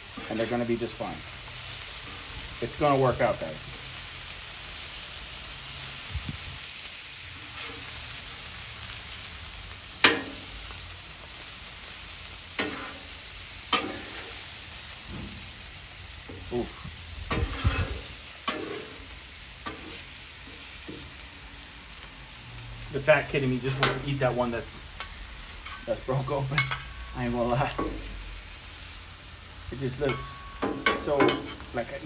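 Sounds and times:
sausages and onions sizzling: 0.0 - 32.0
utensil clacking on griddle: 10.0 - 10.7, 12.5 - 13.1, 13.7 - 14.4, 17.3 - 21.1, 29.9 - 31.8.

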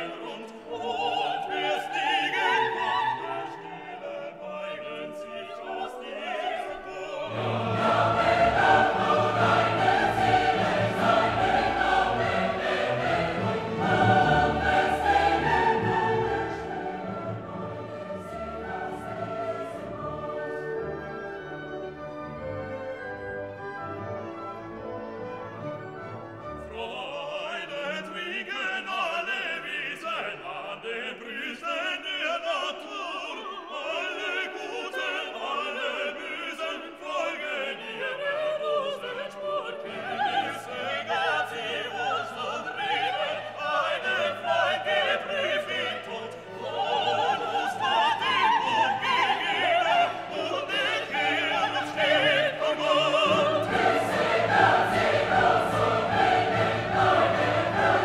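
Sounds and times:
classical music with singing voices: 0.0 - 58.0.

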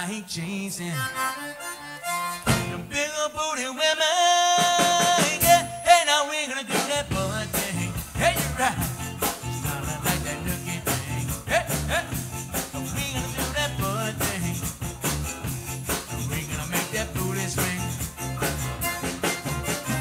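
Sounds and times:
live band dance music: 1.4 - 2.9, 4.5 - 20.0
loud band hit: 2.5 - 2.9, 4.6 - 6.0, 6.8 - 20.0.

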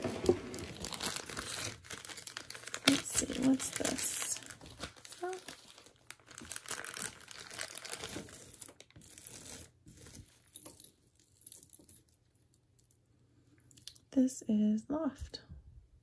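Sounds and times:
packaging crinkling: 0.0 - 12.0
glass beads clinking: 10.4 - 12.2.

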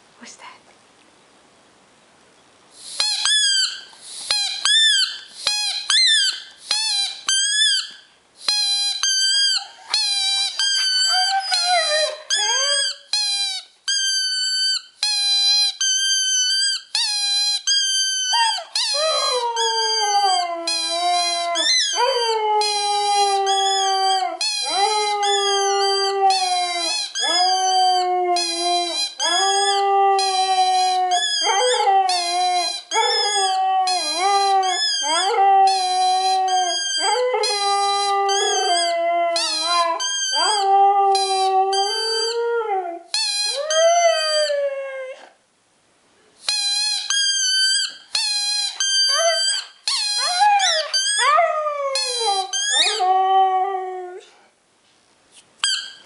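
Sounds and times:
squeaky ball squeaking: 3.0 - 42.4, 43.2 - 44.5, 46.5 - 53.1, 55.6 - 56.0
dog howling: 10.6 - 13.0, 18.4 - 45.3, 50.2 - 54.2.

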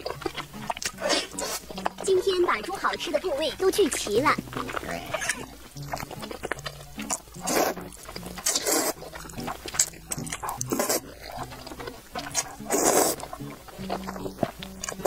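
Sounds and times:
wet mouth clicks: 0.0 - 2.5, 4.0 - 15.0
loud noodle slurps: 0.6 - 2.0, 4.5 - 15.0.

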